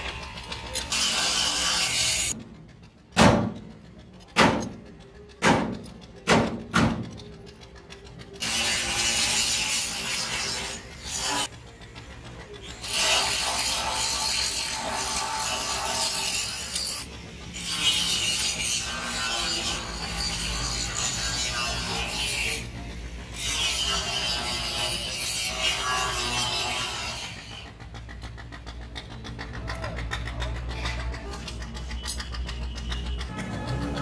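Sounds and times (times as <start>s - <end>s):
metal scraping and rasping: 0.0s - 34.0s
wheel brace clicking on nuts: 2.3s - 8.5s, 27.2s - 34.0s.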